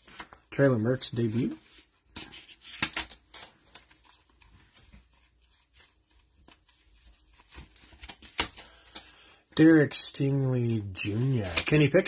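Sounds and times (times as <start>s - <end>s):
trading cards being flipped: 1.3s - 9.2s, 11.1s - 12.0s.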